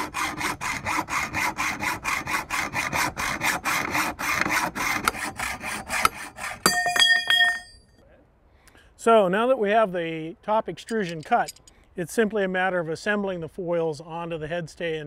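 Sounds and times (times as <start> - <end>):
hacksaw cutting metal: 0.0 - 7.7
ringing metallic clinks: 6.6 - 8.0.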